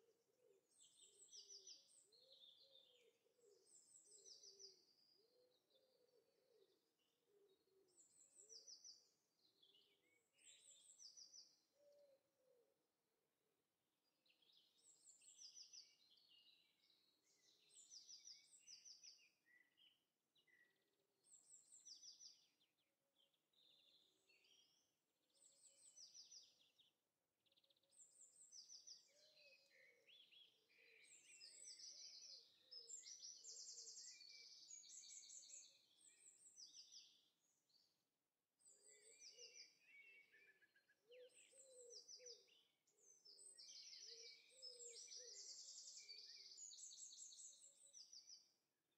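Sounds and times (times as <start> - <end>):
birds chirping and trilling: 28.4 - 37.2, 38.9 - 48.3.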